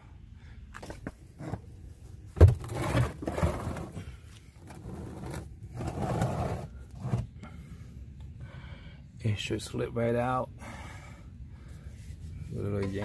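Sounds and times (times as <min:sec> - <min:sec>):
metal and plastic scraping: 0:02.4 - 0:07.4.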